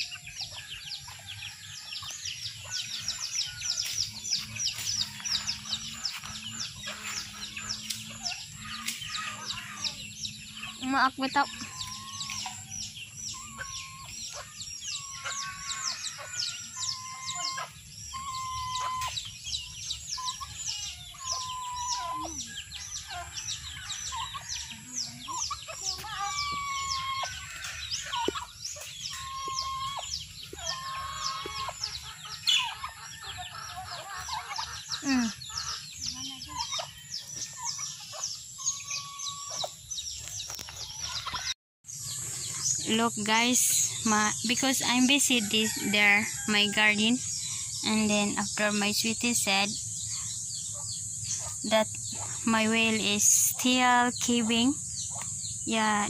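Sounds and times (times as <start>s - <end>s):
chickens clucking: 0.0s - 55.4s
small birds chirping: 0.0s - 56.0s
hen calls: 13.3s - 19.3s, 25.1s - 37.0s.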